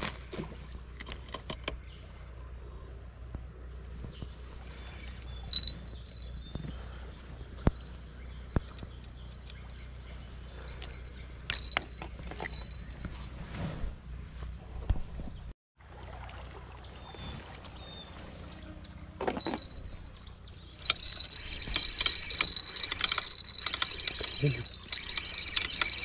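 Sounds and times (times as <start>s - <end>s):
fishing rod clicks and knocks: 0.9s - 1.8s, 7.6s - 13.0s, 19.2s - 20.0s, 20.8s - 26.0s
high-pitched insect chorus: 1.6s - 13.3s, 19.2s - 26.0s.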